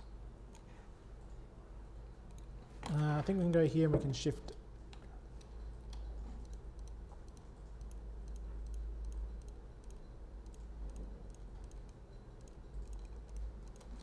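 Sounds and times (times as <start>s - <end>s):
steady low hum: 0.0s - 14.0s
computer mouse clicking: 2.3s - 3.0s, 4.5s - 14.0s.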